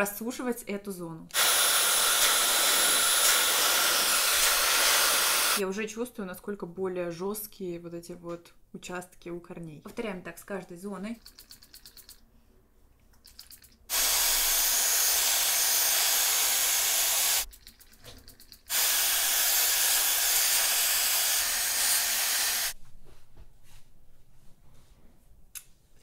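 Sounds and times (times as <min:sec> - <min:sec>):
hair dryer blowing: 0:01.3 - 0:05.6, 0:13.9 - 0:17.5, 0:18.7 - 0:22.8.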